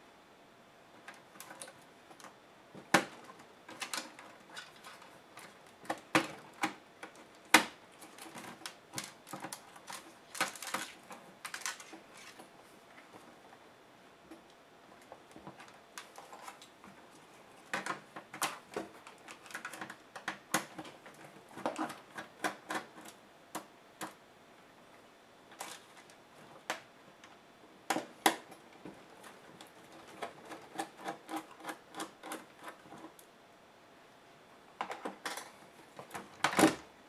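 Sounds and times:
plastic clips clicking and snapping: 2.9s - 12.4s, 17.7s - 24.2s.

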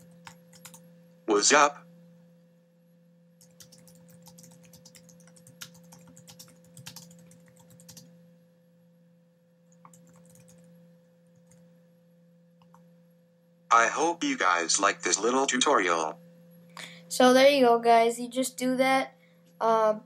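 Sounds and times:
typing on a keyboard: 0.0s - 0.8s, 3.4s - 8.1s, 9.7s - 10.8s
faint steady hum: 0.0s - 20.0s.

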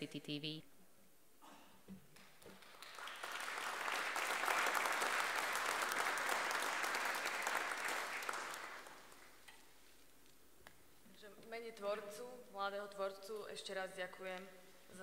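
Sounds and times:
audience applauding: 2.2s - 9.4s.

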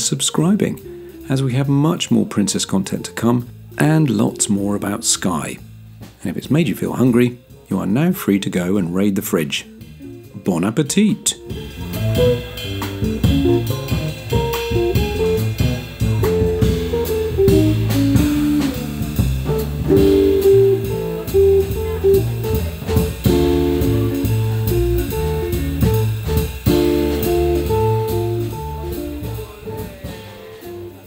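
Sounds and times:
bass guitar: 0.0s - 31.0s
drum kit: 0.0s - 31.0s
electric guitar: 11.5s - 31.0s.

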